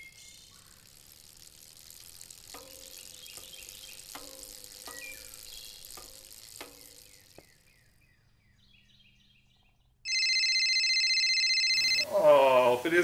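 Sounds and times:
soft hiss: 0:00.0 - 0:08.4, 0:11.9 - 0:13.0
birds chirping: 0:00.0 - 0:13.0
loud steady electronic tone: 0:10.1 - 0:12.3.

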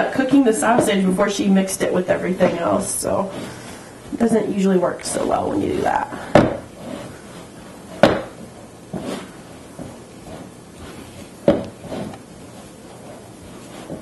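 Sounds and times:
mixing bowl knocking on countertop: 0:08.0 - 0:08.4.

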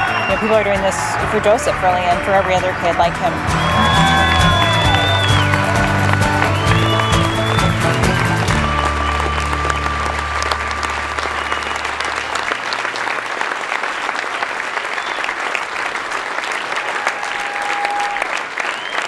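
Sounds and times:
crowd applauding: 0:00.0 - 0:19.0
low held music chord: 0:08.5 - 0:12.4.

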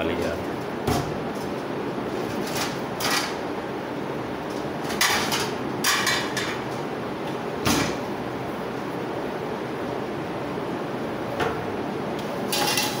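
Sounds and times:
plates and pans rattling: 0:04.9 - 0:06.6, 0:12.5 - 0:13.0.

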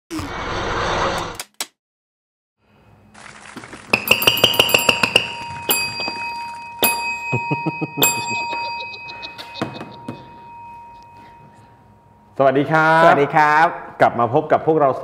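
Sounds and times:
sharp percussive strikes: 0:03.9 - 0:06.2
bell-like chimes: 0:04.0 - 0:12.4.

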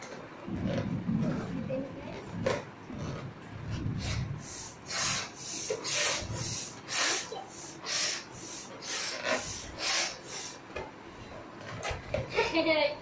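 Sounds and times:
child blowing up balloon: 0:02.1 - 0:10.8.

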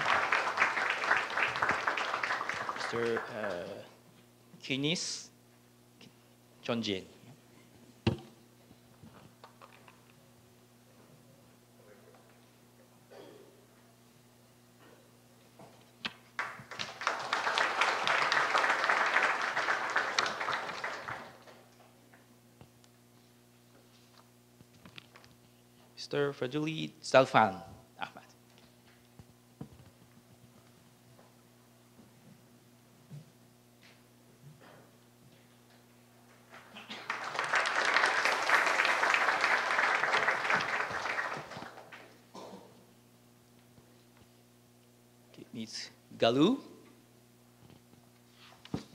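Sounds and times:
audience applauding: 0:00.0 - 0:03.9, 0:16.4 - 0:21.7, 0:36.5 - 0:42.2.

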